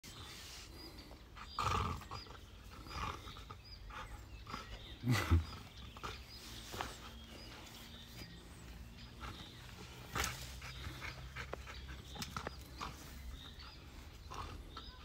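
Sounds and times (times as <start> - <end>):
dog growling: 1.4 - 6.4.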